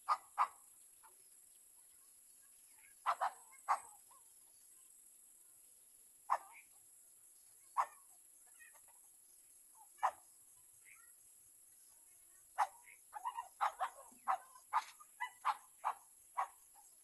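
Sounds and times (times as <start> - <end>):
distant dog barking: 0.0 - 0.6, 3.0 - 4.2, 6.3 - 6.7, 7.8 - 8.1, 10.0 - 10.2, 12.6 - 17.0.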